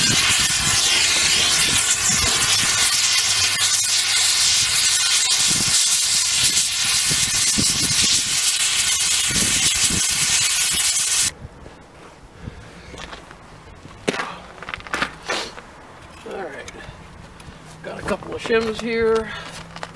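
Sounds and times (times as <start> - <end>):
torch flame hissing: 0.0 - 11.3.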